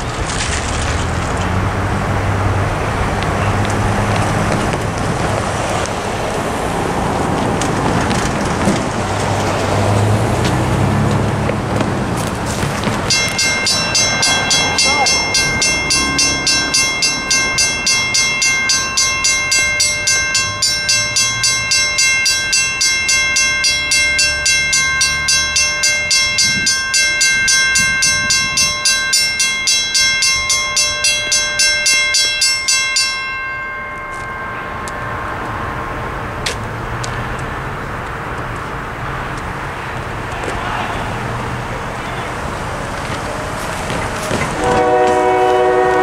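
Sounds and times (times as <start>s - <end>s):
crossing bell ringing: 3.0s - 6.2s, 12.5s - 40.2s, 41.4s - 46.0s.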